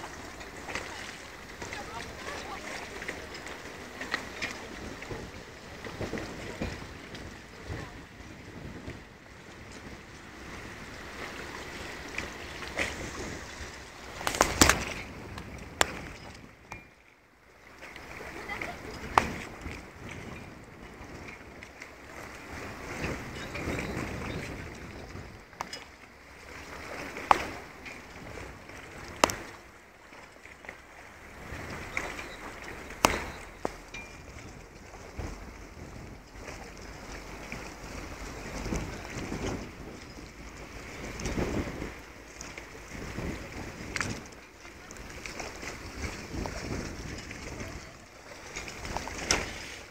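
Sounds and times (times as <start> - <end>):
water lapping at boats: 0.0 - 49.9
wind noise: 4.6 - 16.9, 18.1 - 25.8, 31.2 - 49.9.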